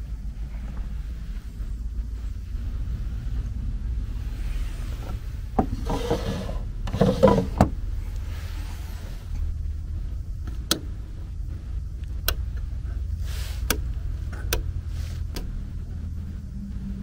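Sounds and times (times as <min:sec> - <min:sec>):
steady low hum: 0:00.0 - 0:17.0
light switches clicking: 0:12.2 - 0:12.6, 0:13.6 - 0:14.7.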